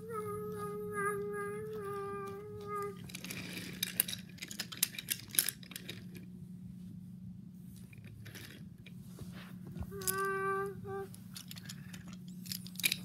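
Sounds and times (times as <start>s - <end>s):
child humming: 0.0s - 3.1s, 9.8s - 11.2s
steady low hum: 0.0s - 13.0s
light clicks and rattles: 1.8s - 6.3s, 11.1s - 13.0s.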